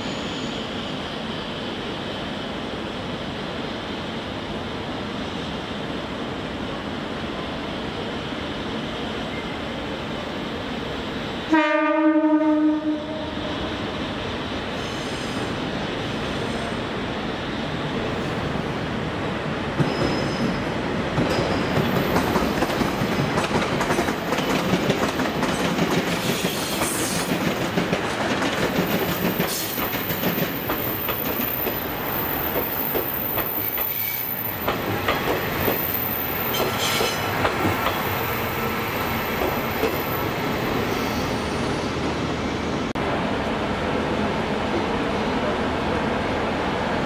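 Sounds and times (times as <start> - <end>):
thin high squeal: 0.0 - 0.8
wheels clacking over rail joints: 21.1 - 31.8, 32.5 - 38.1.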